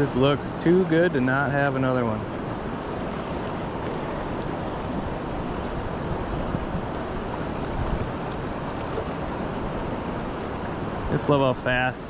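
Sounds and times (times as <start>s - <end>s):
river flowing: 0.0s - 12.0s
wind on microphone: 2.7s - 11.2s.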